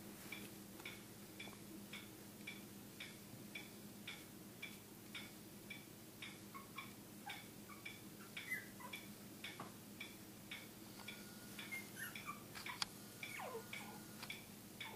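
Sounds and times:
faint clock ticking: 0:00.2 - 0:14.9
puppy whimpering: 0:06.5 - 0:09.1, 0:11.6 - 0:14.1.

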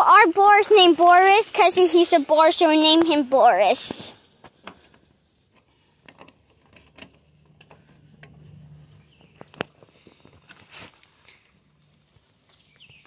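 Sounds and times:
low steady hum: 0:04.2 - 0:12.8.

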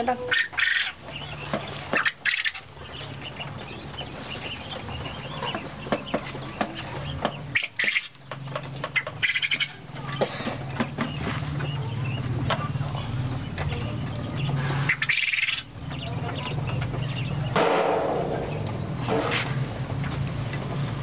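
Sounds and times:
quail fluttering and chirping: 0:00.0 - 0:17.6.

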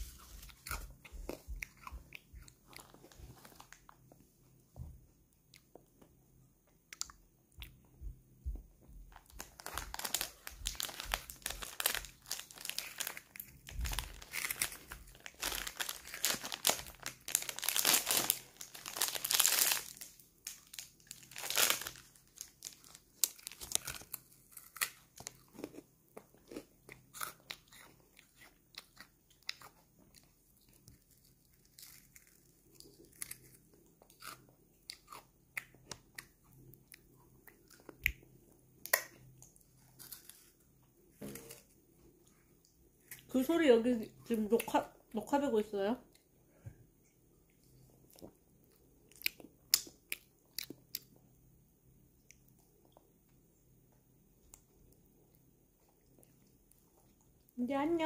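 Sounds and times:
child crunching gummy candy: 0:00.0 - 0:04.1, 0:09.2 - 0:38.2, 0:47.7 - 0:51.2.

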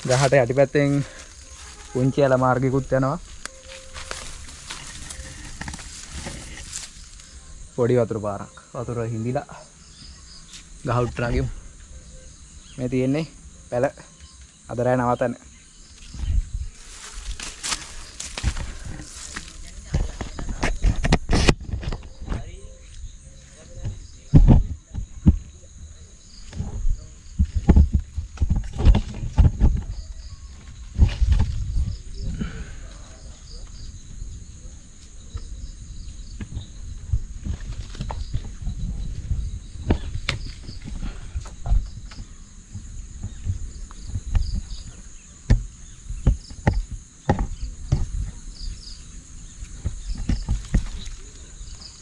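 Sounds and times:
person climbing tree trunk: 0:00.0 - 0:07.4, 0:15.9 - 0:23.0, 0:26.3 - 0:34.2, 0:34.9 - 0:52.0
insects humming: 0:00.0 - 0:52.0.

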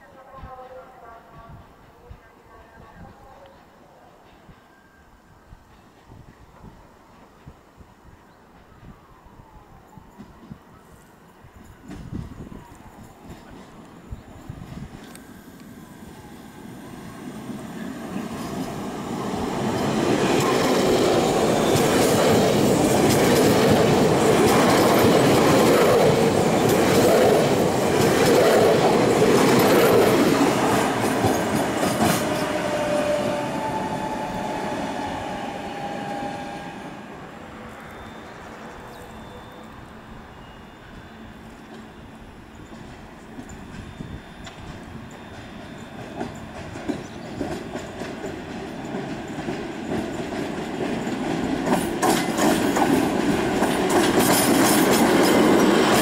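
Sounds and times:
electric train passing: 0:03.4 - 0:56.0
faint high wheel squeal: 0:32.2 - 0:48.0
wheels clicking over rail joints: 0:42.7 - 0:56.0.

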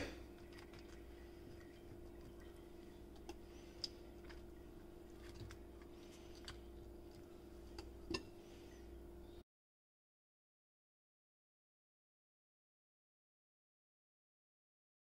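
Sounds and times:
steady low hum: 0:00.0 - 0:09.4.

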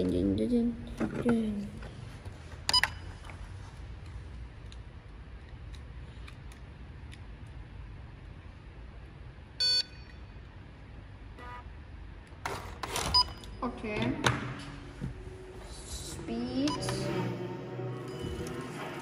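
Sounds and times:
low steady hum: 0:00.0 - 0:19.0
electronic beeps: 0:16.6 - 0:19.0.

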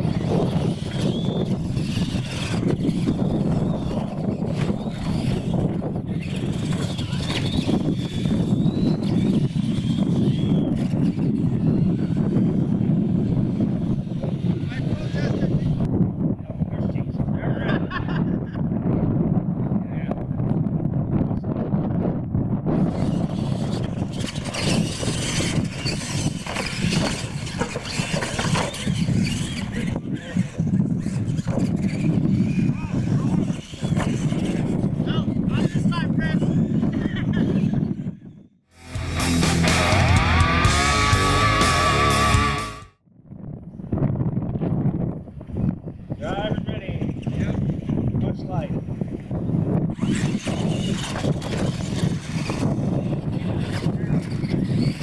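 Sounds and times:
toy truck motors whining: 0:00.0 - 0:15.8, 0:22.8 - 0:38.0, 0:49.7 - 0:55.0
tyres and chassis clattering: 0:23.7 - 0:30.0
low rumble: 0:38.8 - 0:43.6.

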